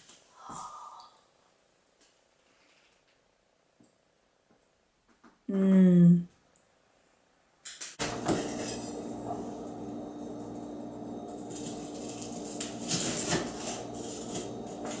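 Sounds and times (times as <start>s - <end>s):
steady low hum: 8.0s - 15.0s
knife crunching through crispy bar: 11.6s - 14.5s.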